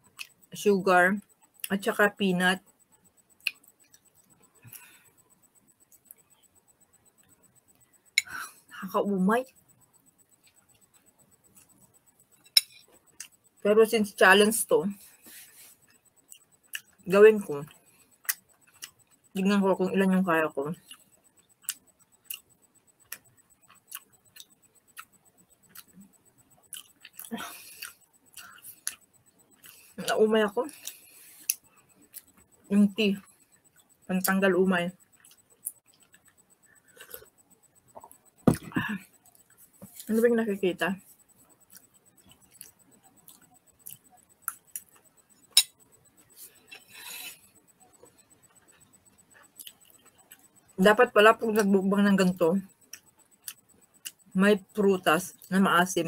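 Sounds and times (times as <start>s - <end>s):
wet chewing clicks: 20.8s - 30.0s, 41.4s - 50.5s.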